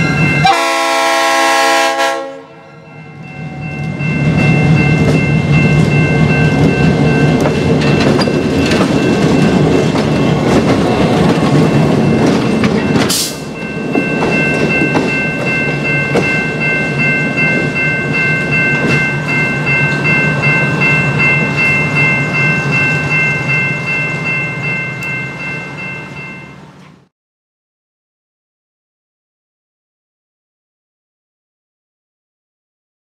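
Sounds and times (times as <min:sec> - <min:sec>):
crossing bell ringing rapidly: 0:00.0 - 0:01.9, 0:02.6 - 0:26.8
diesel locomotive rumbling: 0:00.0 - 0:27.1
wheels clattering over rails: 0:04.4 - 0:16.4.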